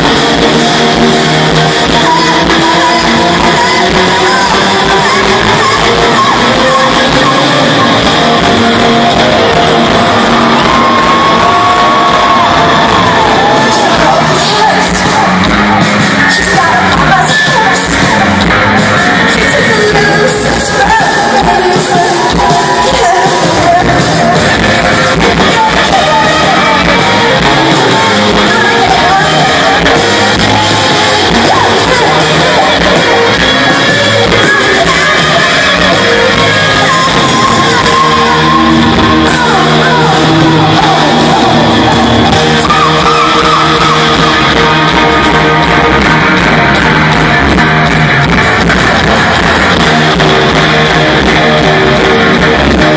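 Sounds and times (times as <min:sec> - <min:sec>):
live pop-rock band: 0:00.0 - 0:52.9
woman singing and yelling: 0:00.8 - 0:15.4, 0:16.3 - 0:18.4, 0:19.3 - 0:44.5.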